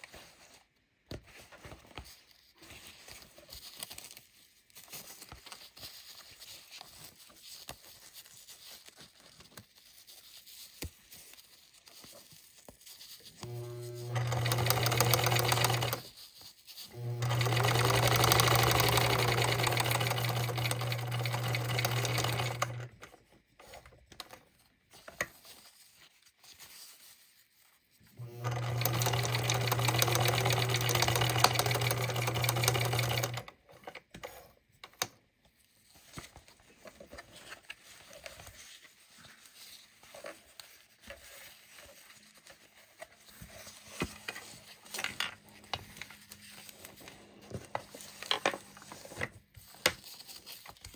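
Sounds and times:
sewing machine stitching: 13.4s - 16.1s, 16.9s - 23.0s, 28.2s - 33.5s.

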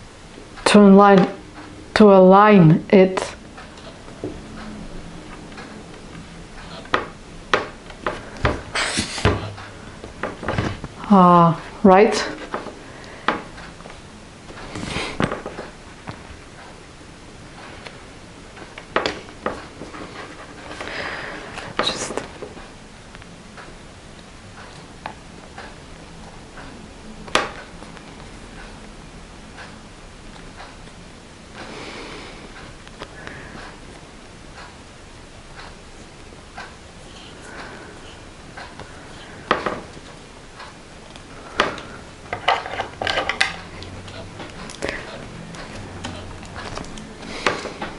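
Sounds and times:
paper rustling and sliding: 8.8s - 9.4s.

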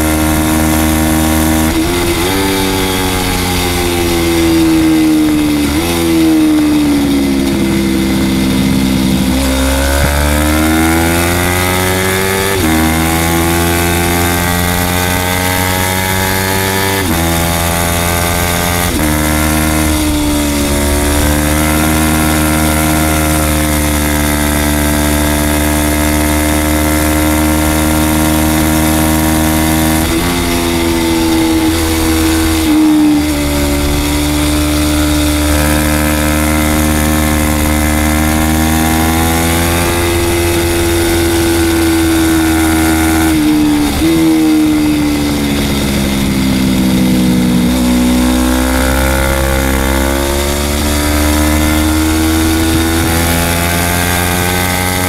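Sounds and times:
motorcycle engine revving high: 0.0s - 55.0s.

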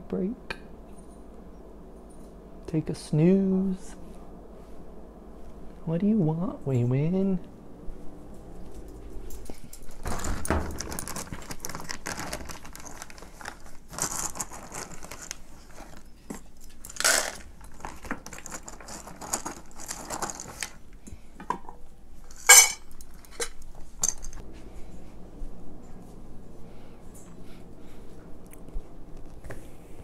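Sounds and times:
dishes and cutlery clattering: 22.3s - 24.4s.

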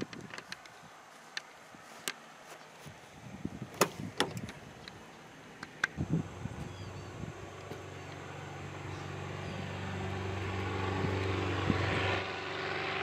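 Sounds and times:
sharp clicks and knocks: 3.8s - 5.0s, 5.6s - 6.0s.

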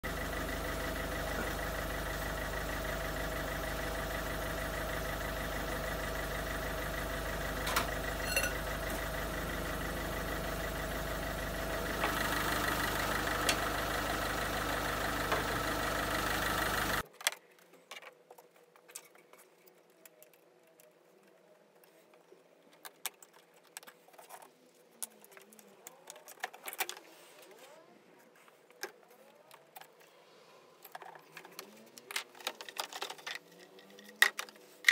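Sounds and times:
diesel engine idling: 0.0s - 17.0s.

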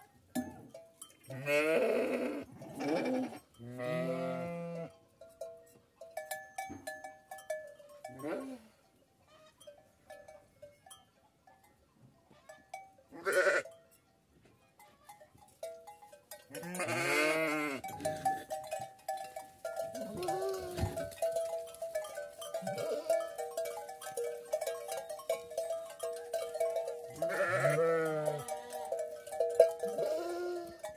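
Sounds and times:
sheep bleating: 1.4s - 4.9s, 13.2s - 13.7s, 16.6s - 18.4s, 20.0s - 21.0s, 22.6s - 23.4s, 27.2s - 28.9s, 29.8s - 30.9s.

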